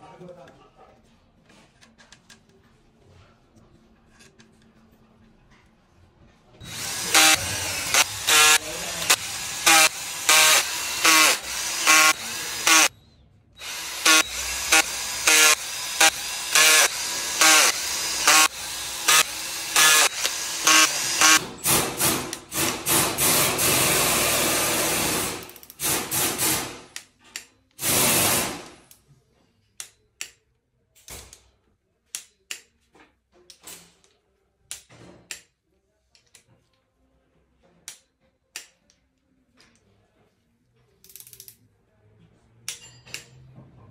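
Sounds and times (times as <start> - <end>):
cordless drill bursts: 6.6 - 12.9, 13.6 - 26.8.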